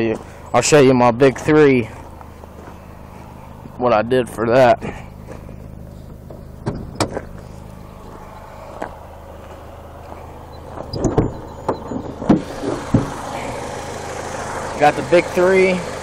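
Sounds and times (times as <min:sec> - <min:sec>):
car engine idling: 0:00.0 - 0:16.0
hood knocks and clanks: 0:04.8 - 0:07.7, 0:10.1 - 0:13.6.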